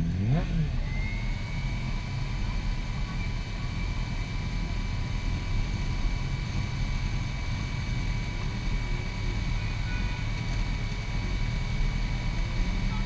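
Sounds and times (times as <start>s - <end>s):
motorcycle engines idling: 0.0s - 13.0s.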